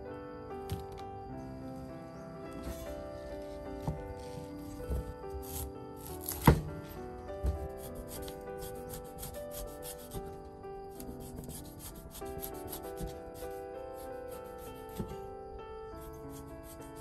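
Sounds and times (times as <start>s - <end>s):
background music: 0.0s - 17.0s
cleaver scraping cuts: 4.6s - 6.7s, 7.8s - 10.2s.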